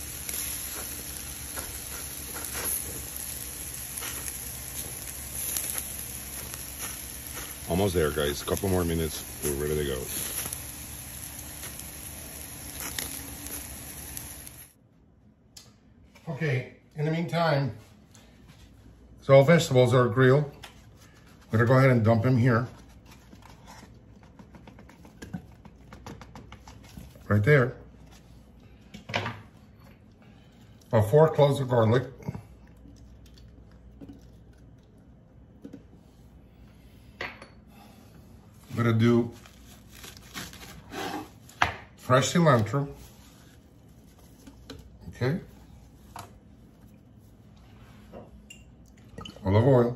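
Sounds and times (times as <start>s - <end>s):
faint crackles: 0.0s - 14.8s
meat sizzling on a grill: 0.0s - 14.8s.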